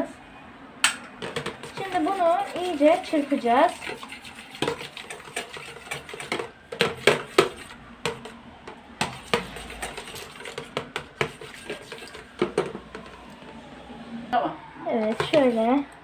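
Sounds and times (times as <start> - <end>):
whisk clicking in plastic container: 1.2 - 13.2, 15.0 - 15.6.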